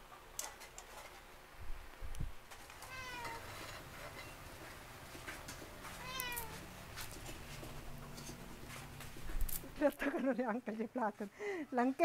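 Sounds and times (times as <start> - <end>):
cat meowing: 2.8 - 3.4, 6.0 - 6.6.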